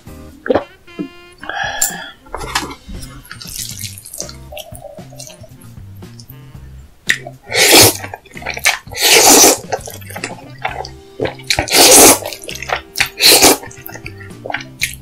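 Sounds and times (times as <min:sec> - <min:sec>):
noodles being slurped loudly: 0:03.4 - 0:05.5, 0:07.5 - 0:15.0.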